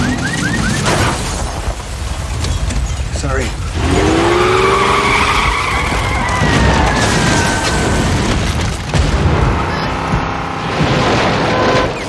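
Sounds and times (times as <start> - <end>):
car engine rumbling: 0.0 - 12.0
tyres squealing: 3.9 - 8.7
car jolt: 5.0 - 12.0.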